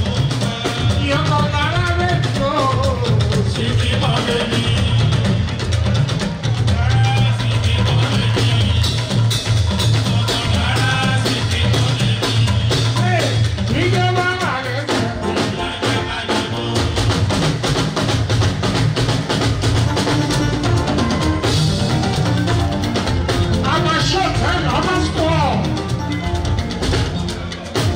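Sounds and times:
dense steady drumming: 0:00.0 - 0:27.9
person singing: 0:13.8 - 0:17.3.

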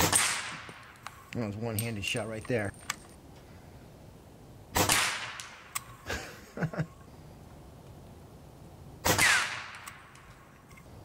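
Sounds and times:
air rifle shots: 0:00.0 - 0:01.3, 0:04.7 - 0:05.9, 0:09.0 - 0:10.2.

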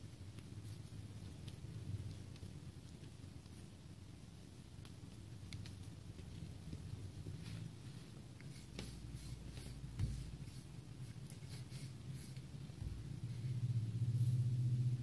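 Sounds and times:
rolling pin rubbing on dough: 0:06.2 - 0:14.6
low hum: 0:12.8 - 0:15.0.

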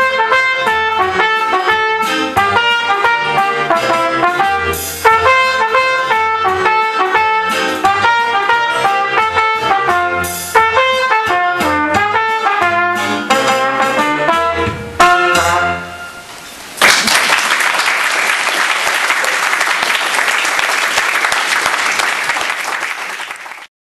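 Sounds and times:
brass ensemble playing: 0:00.0 - 0:16.3
audience applause: 0:16.8 - 0:23.7.

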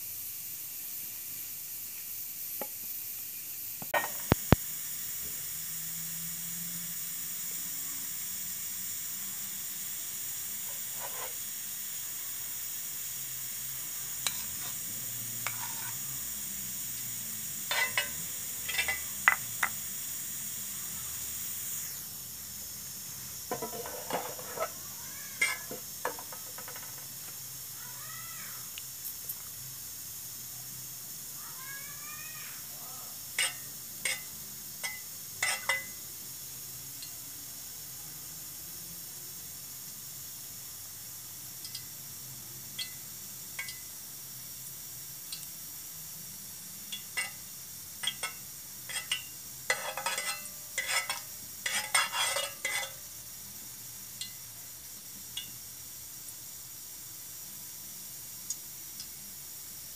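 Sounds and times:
egg sizzling in oil: 0:00.0 - 0:59.9
metal spoon scraping pan: 0:10.6 - 0:11.4, 0:14.2 - 0:14.8, 0:15.4 - 0:16.0, 0:17.6 - 0:19.7, 0:23.5 - 0:24.8, 0:25.4 - 0:27.0, 0:33.4 - 0:36.0, 0:47.2 - 0:47.4, 0:48.0 - 0:53.1.

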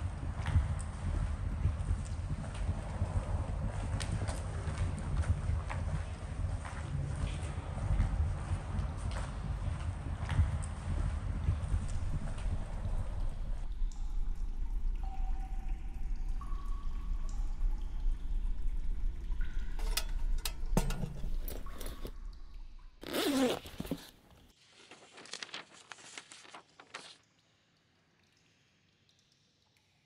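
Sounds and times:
dripping tunnel rumble: 0:00.0 - 0:24.1
paper pages rustling: 0:20.8 - 0:22.1, 0:23.0 - 0:27.2
zip rasping: 0:23.0 - 0:24.4.

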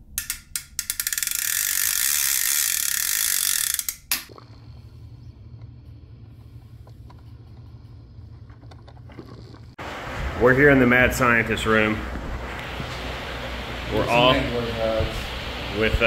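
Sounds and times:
rapid ratcheting click and rattle: 0:00.0 - 0:04.3.

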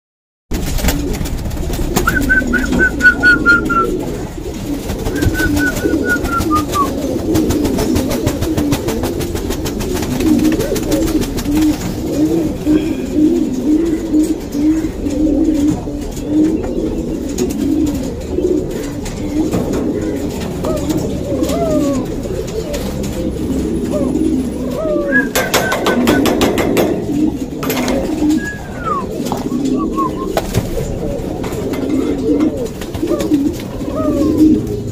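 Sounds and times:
rustling noise: 0:00.5 - 0:12.7, 0:13.4 - 0:34.9
pigeons cooing: 0:00.6 - 0:34.9
thin high falling calls: 0:01.0 - 0:09.2, 0:23.9 - 0:26.5, 0:27.1 - 0:34.4.

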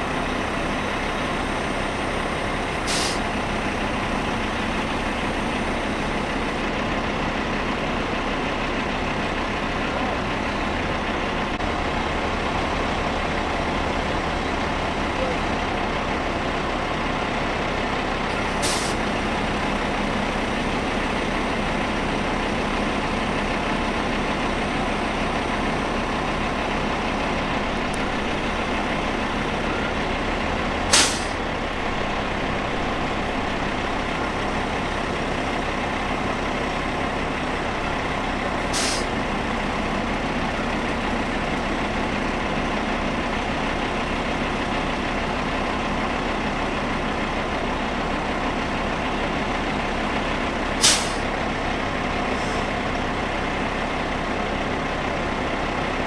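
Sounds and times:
diesel engine running: 0:00.0 - 0:56.0
air brakes hissing: 0:02.8 - 0:03.4, 0:18.4 - 0:19.0, 0:30.9 - 0:31.4, 0:38.6 - 0:39.1, 0:50.8 - 0:51.3, 0:52.3 - 0:52.8.

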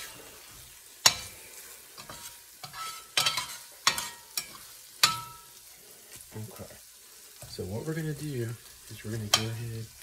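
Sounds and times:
metal spatula scraping a pan: 0:00.0 - 0:06.3, 0:08.6 - 0:10.0
faint sizzling: 0:00.0 - 0:10.0.

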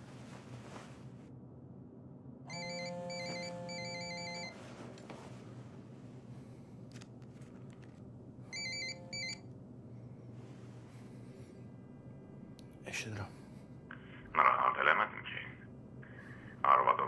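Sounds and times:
telephone ringtone ringing: 0:02.5 - 0:04.6, 0:08.5 - 0:09.4.

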